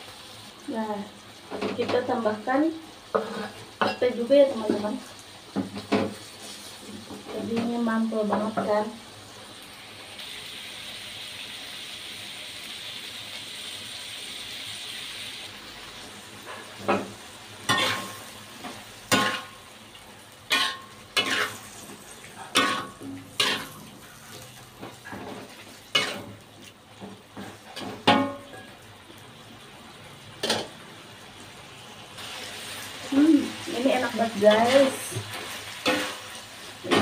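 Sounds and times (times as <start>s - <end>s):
food sizzling in a wok: 0.0s - 37.0s
metal spatula scraping a wok: 3.1s - 4.0s, 17.6s - 18.4s, 20.5s - 26.4s, 34.0s - 37.0s.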